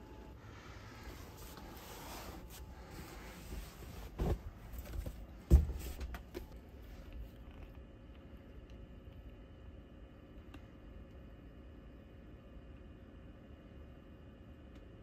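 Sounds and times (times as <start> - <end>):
bedding rustling: 0.5 - 6.9
dull thumps on mattress: 3.7 - 6.2.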